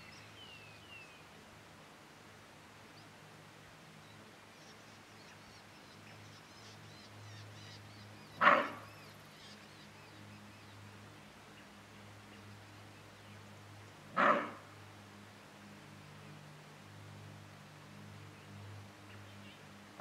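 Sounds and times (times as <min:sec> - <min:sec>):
antelope alarm bark: 0:08.4 - 0:08.9, 0:14.2 - 0:14.7.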